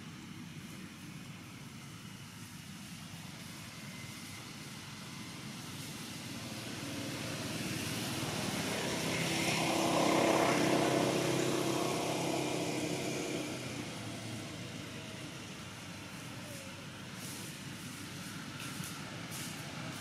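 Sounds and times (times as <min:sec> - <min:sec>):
engine passing by: 0:03.5 - 0:20.0.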